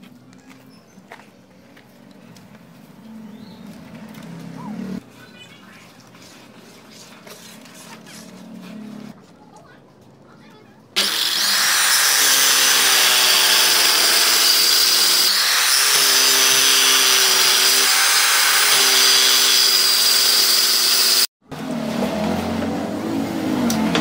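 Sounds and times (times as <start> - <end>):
circular saw cutting board: 11.0 - 22.8.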